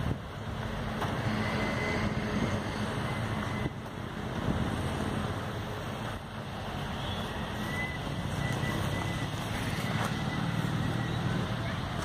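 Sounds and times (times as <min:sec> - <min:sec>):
wind noise on microphone: 0:00.0 - 0:05.3.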